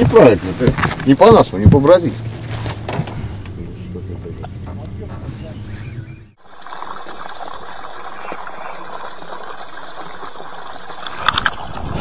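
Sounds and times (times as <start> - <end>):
water rushing beside boat: 5.7 - 12.0.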